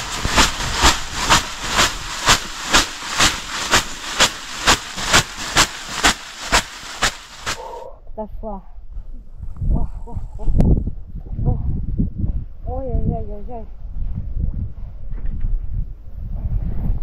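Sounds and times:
leafy bath broom swishing: 0.0s - 7.8s.

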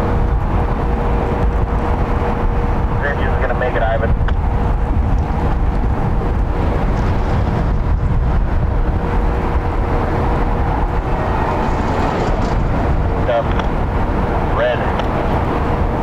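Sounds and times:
traffic rumble: 0.0s - 16.0s
minivan driving past: 4.5s - 16.0s.

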